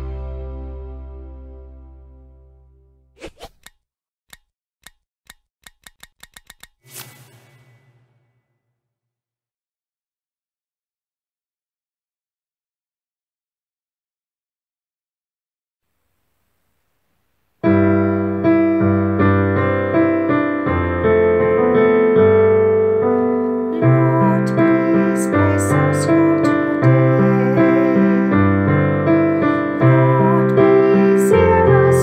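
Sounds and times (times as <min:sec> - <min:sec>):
piano playing chords: 0:00.0 - 0:02.9, 0:17.6 - 0:32.0.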